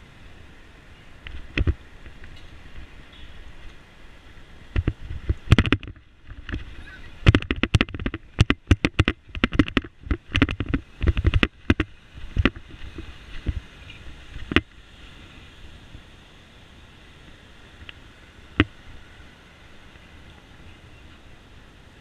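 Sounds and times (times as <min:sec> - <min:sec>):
bicycle rattling over rough pavement: 0:00.0 - 0:22.0
faint steady hiss: 0:00.0 - 0:22.0.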